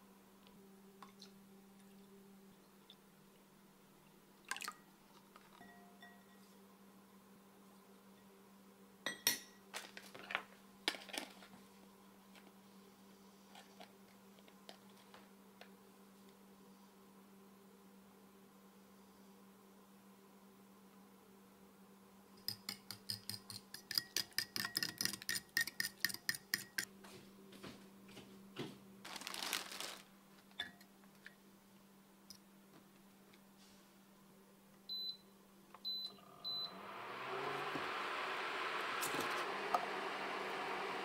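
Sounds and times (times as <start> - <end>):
fork beating eggs in glass bowl: 22.4 - 26.9
cooling fan rushing: 36.7 - 41.0.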